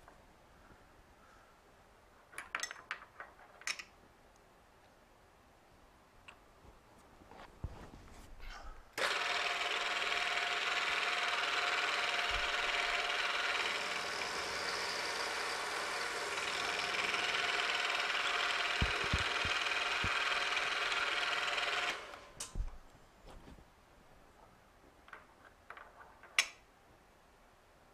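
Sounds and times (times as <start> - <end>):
milling machine cutting metal: 9.0 - 22.3.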